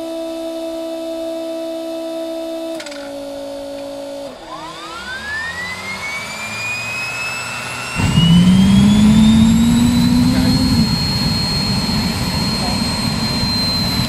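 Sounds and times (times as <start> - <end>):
turbine ignition roar: 2.2 - 14.0
turbine whine spooling up: 3.5 - 14.0
steady hum: 8.0 - 14.0.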